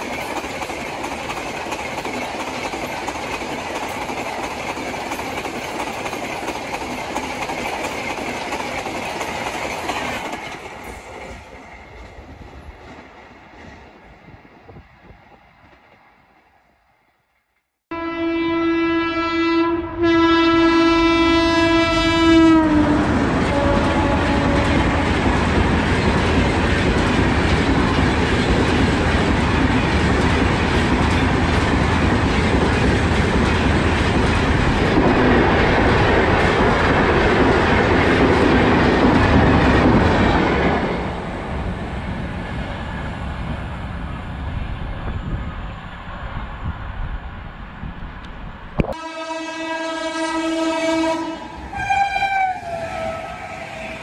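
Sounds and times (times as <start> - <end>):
coach wheels clattering: 0.0 - 12.2
train rushing past: 0.0 - 17.2, 20.0 - 54.0
train horn blasts: 17.9 - 25.3, 48.8 - 54.0.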